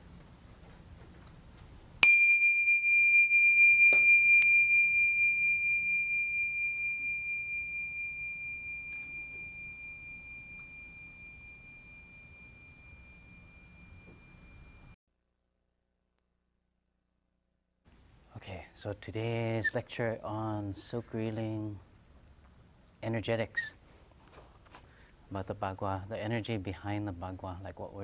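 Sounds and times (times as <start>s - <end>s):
small cymbals ringing: 2.0s - 15.0s.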